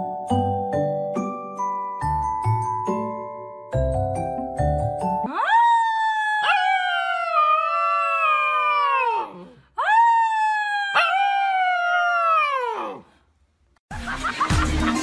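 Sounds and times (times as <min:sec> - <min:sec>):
puppy howling: 0:05.3 - 0:13.0.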